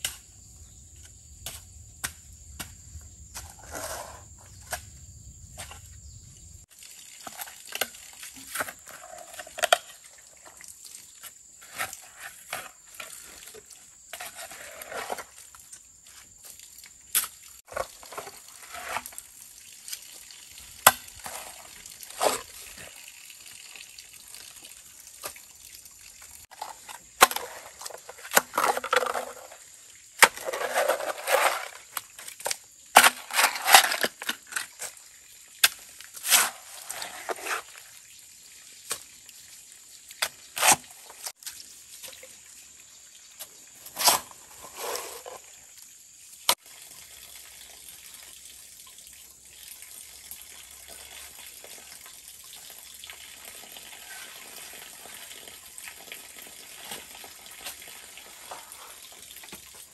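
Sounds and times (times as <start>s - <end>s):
mud squelching: 16.2s - 23.1s, 35.6s - 38.0s.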